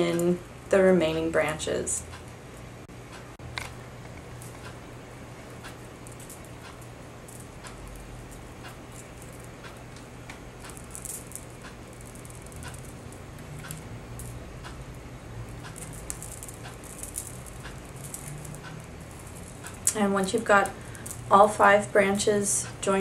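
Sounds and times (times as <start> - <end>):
low steady hum: 0.0 - 23.0
wire rustling: 3.5 - 21.6
beads clicking together: 5.4 - 21.8.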